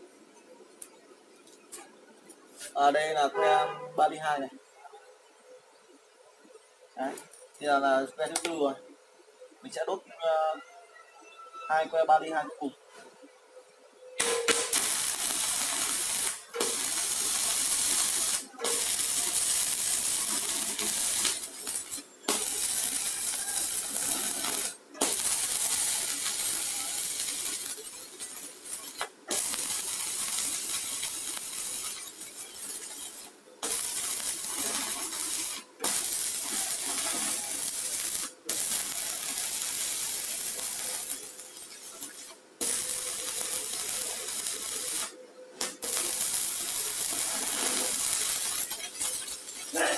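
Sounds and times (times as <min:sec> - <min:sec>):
welding arc crackling hiss: 0:14.2 - 0:49.9.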